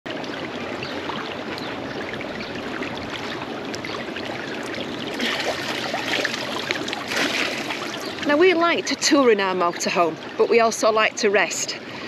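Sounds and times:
pool water lapping and splashing: 0:00.1 - 0:12.0.

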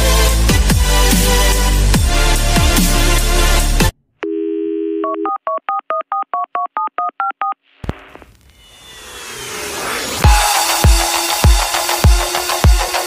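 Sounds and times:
electronic music with heavy bass: 0:00.0 - 0:03.9, 0:10.2 - 0:13.0
telephone dial tone: 0:04.2 - 0:07.6
whoosh: 0:07.9 - 0:10.8.

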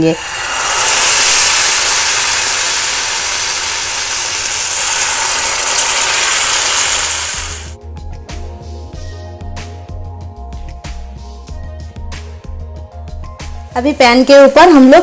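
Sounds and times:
batter sizzling in hot oil: 0:00.0 - 0:07.8
background music with ticking beats: 0:07.8 - 0:14.7.

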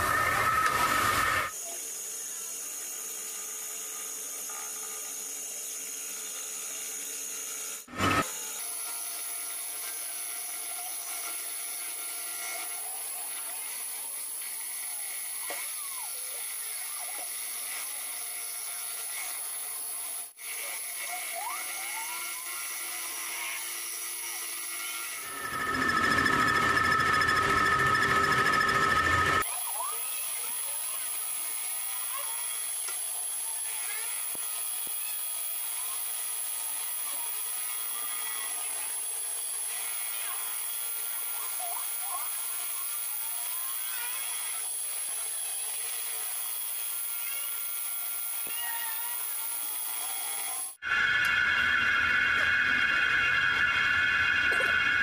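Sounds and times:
metal lathe cutting steel: 0:16.1 - 0:55.0
squeals from cutting tool: 0:24.3 - 0:30.8.

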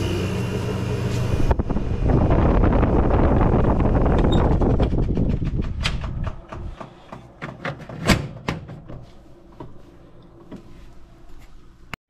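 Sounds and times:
air conditioner running: 0:00.0 - 0:12.0
knocks and clicks: 0:04.1 - 0:09.0.

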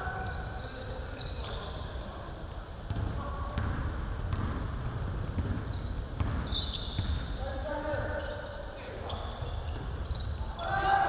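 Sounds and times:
basketball bouncing on wooden floor: 0:02.9 - 0:07.2.

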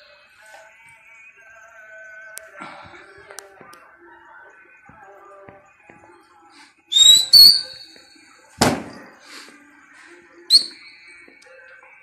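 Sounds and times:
loud piercing whistles: 0:06.9 - 0:08.2, 0:10.5 - 0:11.2
sharp bang: 0:08.6 - 0:09.1.

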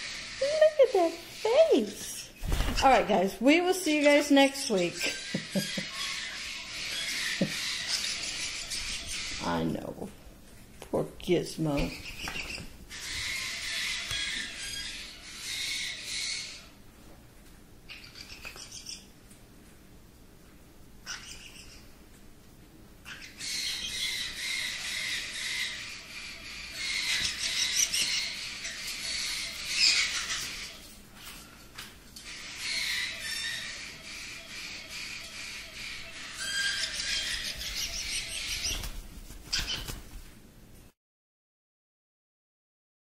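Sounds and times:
baby parrots chattering and calling: 0:00.0 - 0:10.0, 0:11.6 - 0:16.8, 0:17.9 - 0:19.2, 0:21.0 - 0:22.0, 0:23.0 - 0:40.0.

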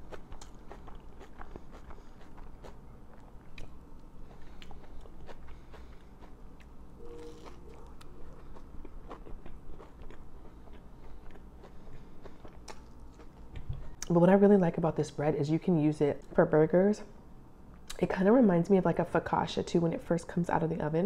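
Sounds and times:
chewing sandwich: 0:00.0 - 0:14.1
short hum: 0:06.9 - 0:08.4.

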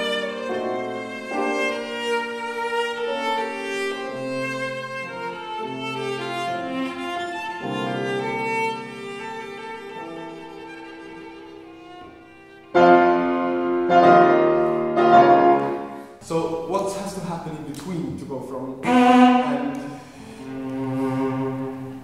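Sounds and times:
piano accompaniment: 0:00.0 - 0:22.0
cello bowed with vibrato: 0:18.8 - 0:22.0.

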